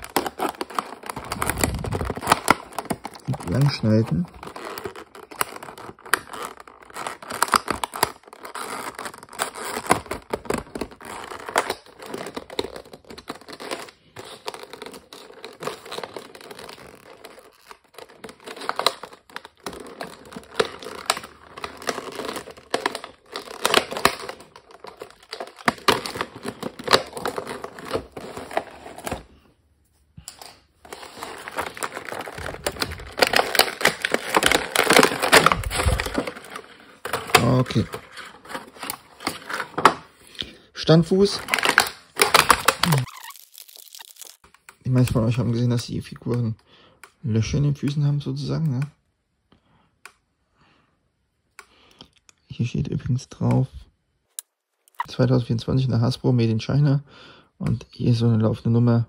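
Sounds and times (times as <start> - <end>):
plastic packaging crinkling: 0.0 - 29.6, 30.2 - 47.0.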